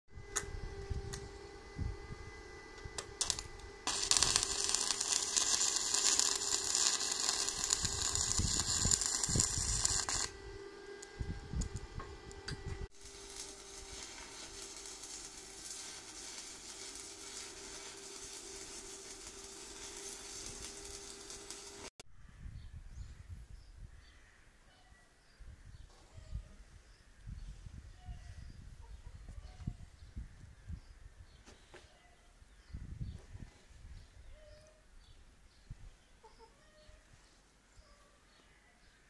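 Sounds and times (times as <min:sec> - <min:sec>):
steady hum: 0:00.1 - 0:21.9
welding arc crackling hiss: 0:02.8 - 0:10.4, 0:11.0 - 0:22.0.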